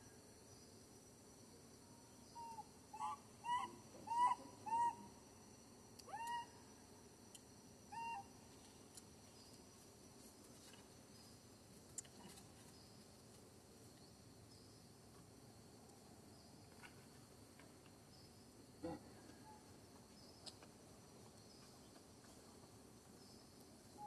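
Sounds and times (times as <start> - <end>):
infant monkey crying: 2.5 - 5.0.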